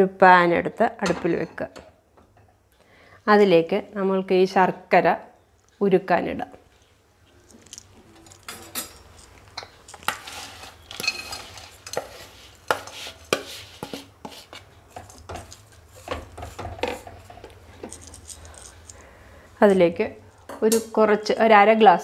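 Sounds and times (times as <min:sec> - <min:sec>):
spatula scraping: 0:08.0 - 0:19.0.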